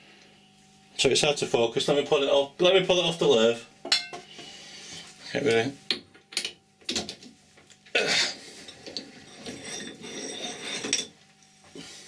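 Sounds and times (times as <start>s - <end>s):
metal scraping: 8.5s - 11.2s.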